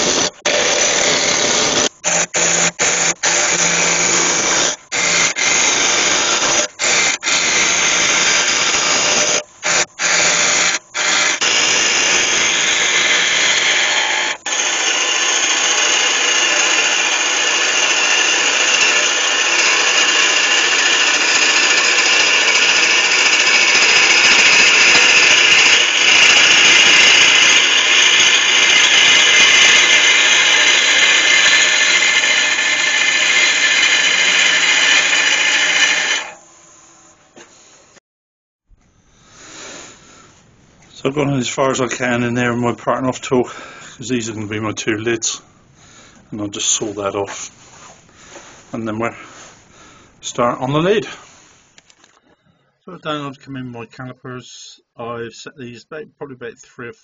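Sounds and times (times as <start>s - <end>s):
lathe chisel cutting wood: 0.0s - 37.2s.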